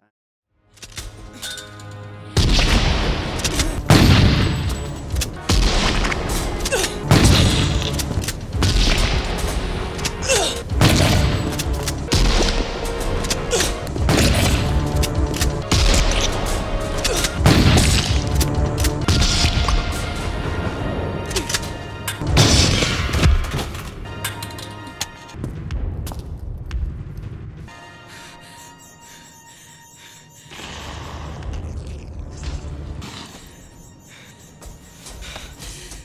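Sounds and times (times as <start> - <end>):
film score music: 0.5 - 36.0.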